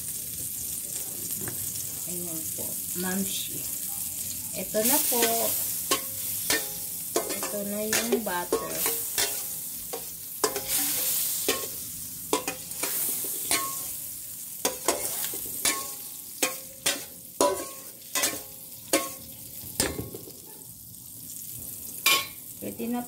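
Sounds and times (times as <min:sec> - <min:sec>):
butter sizzling in wok: 0:00.0 - 0:23.0
metal ladle scraping wok: 0:04.8 - 0:20.0.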